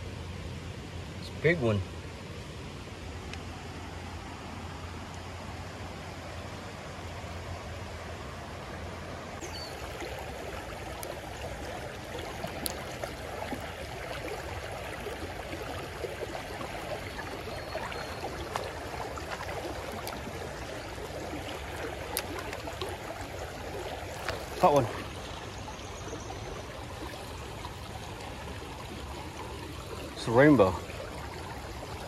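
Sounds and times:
creek water running over rocks: 0:00.0 - 0:32.0
faint ticks: 0:12.5 - 0:12.8.

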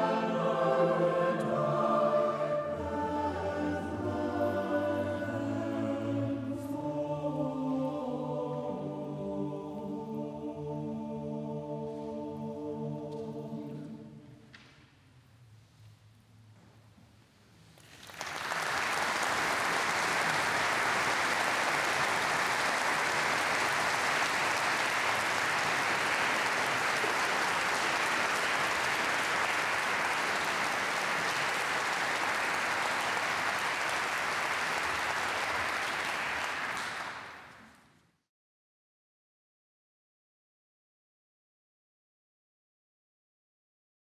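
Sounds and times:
audience applauding: 0:17.8 - 0:37.8.

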